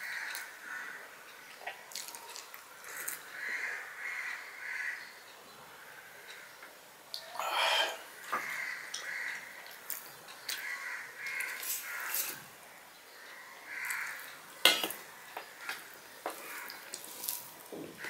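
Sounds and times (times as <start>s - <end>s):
bird cawing: 3.3s - 5.0s, 7.2s - 9.6s, 10.6s - 12.4s, 13.2s - 14.3s, 15.1s - 16.9s.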